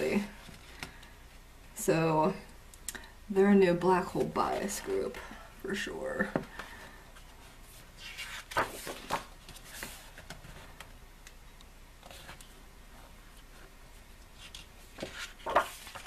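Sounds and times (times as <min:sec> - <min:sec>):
photobook pages turning: 0:07.4 - 0:10.9, 0:12.0 - 0:12.6, 0:14.3 - 0:16.0
paper rustles and taps: 0:14.5 - 0:16.0.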